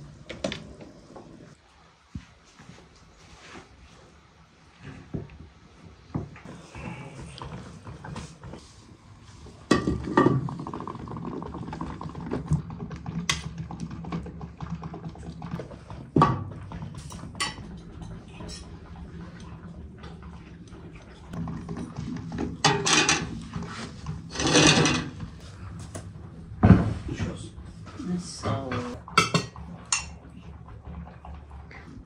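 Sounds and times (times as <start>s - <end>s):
utensils clinking on plate: 22.6s - 23.4s, 24.3s - 25.2s.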